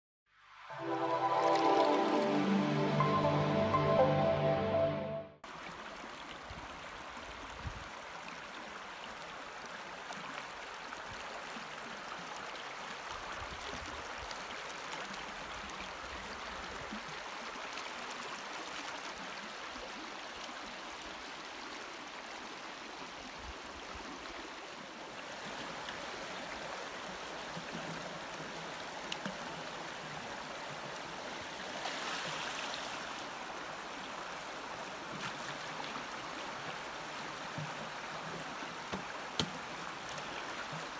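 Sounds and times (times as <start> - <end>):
river rushing over stones: 0.6 - 4.5, 23.4 - 40.9.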